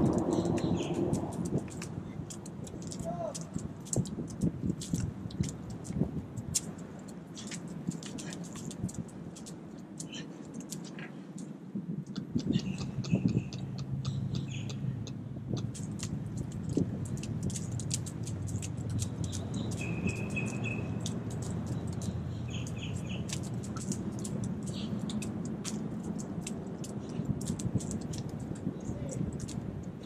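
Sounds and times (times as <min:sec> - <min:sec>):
sharp irregular clicking: 0:00.0 - 0:30.0
wind and water rumble: 0:00.0 - 0:30.0
bird chirps: 0:00.3 - 0:01.0, 0:12.4 - 0:14.9, 0:19.2 - 0:21.0, 0:21.7 - 0:23.3.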